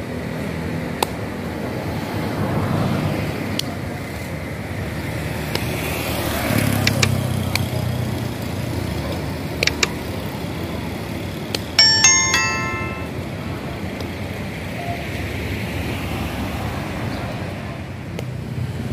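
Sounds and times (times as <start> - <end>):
traffic hum: 0.0 - 18.9
sharp clicks: 6.8 - 7.6, 9.6 - 10.0
bell-like notification chime: 11.8 - 13.2.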